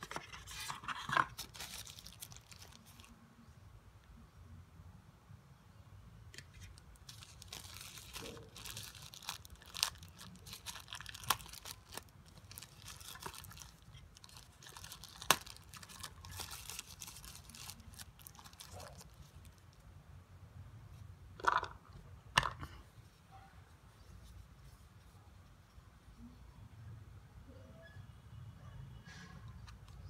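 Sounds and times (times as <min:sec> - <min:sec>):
paper wrapper crinkling: 0:00.0 - 0:03.2, 0:06.4 - 0:19.9.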